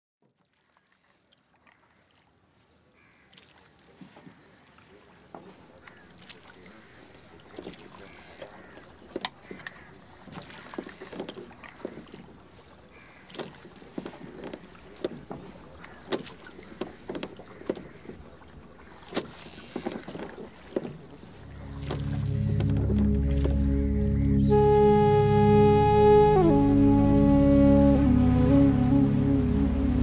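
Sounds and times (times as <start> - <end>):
oars knocking and creaking: 0.2 - 24.8
water splashing from oar strokes: 0.2 - 30.0
droning music: 21.4 - 30.0.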